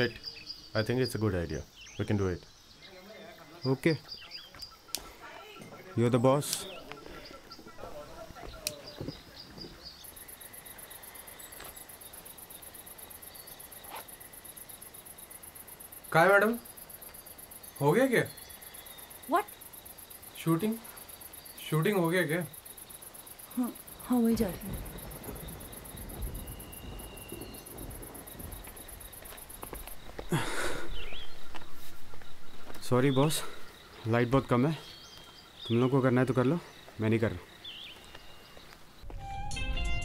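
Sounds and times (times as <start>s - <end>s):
high-pitched insect chirping: 9.8s - 40.0s.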